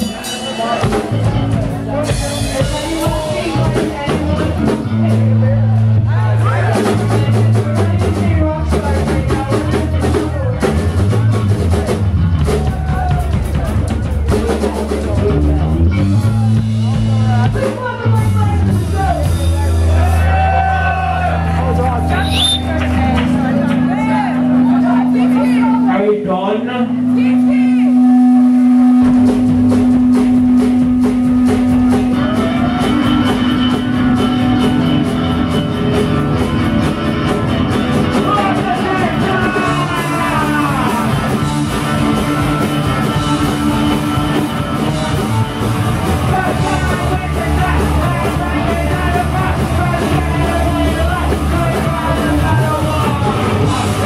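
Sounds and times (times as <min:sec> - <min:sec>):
punk rock band playing: 0:00.0 - 0:54.0
person singing: 0:38.2 - 0:54.0.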